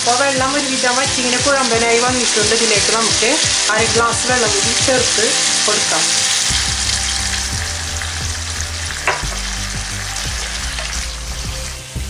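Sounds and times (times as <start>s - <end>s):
chicken sizzling in pan: 0.0s - 12.0s
sharp tap: 9.1s - 9.4s.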